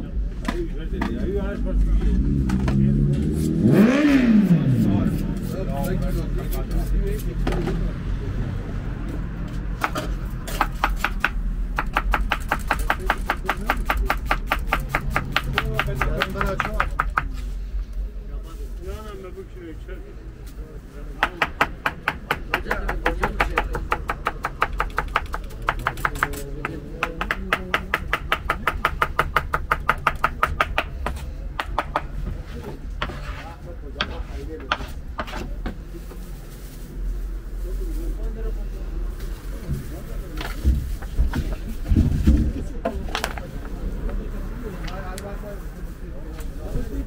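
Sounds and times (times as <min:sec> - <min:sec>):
knife chopping on cutting board: 0:09.8 - 0:17.3.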